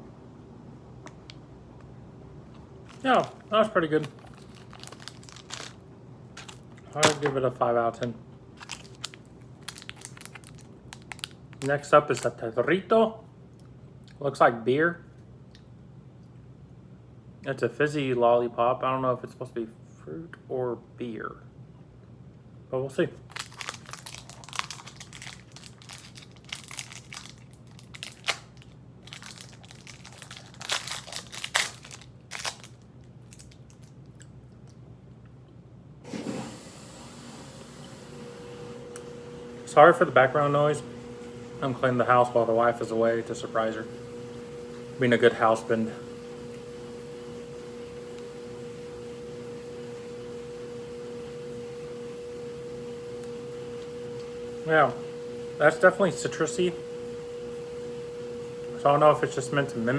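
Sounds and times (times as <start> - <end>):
cleaning appliance humming: 2.4 - 12.3, 23.3 - 32.7, 36.0 - 59.9
candy wrapper crinkling: 2.5 - 7.4, 8.6 - 12.4, 23.2 - 34.8.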